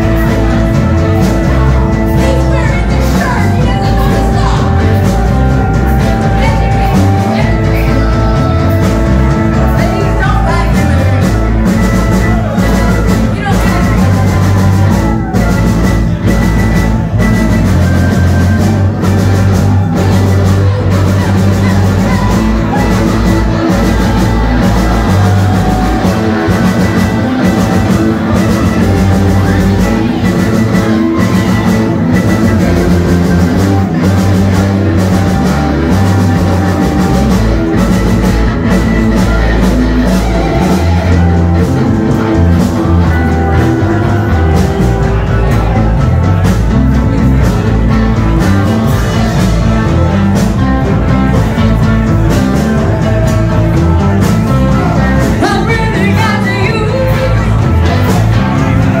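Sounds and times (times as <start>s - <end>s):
person singing: 0.0s - 15.5s, 52.6s - 59.0s
drum kit: 0.0s - 59.0s
electric guitar: 0.0s - 59.0s.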